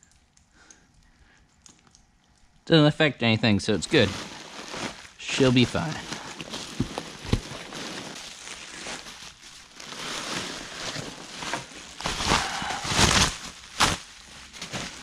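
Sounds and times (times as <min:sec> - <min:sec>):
bubble wrap crinkling: 0:03.7 - 0:15.0
packing peanuts shifting in box: 0:03.8 - 0:15.0.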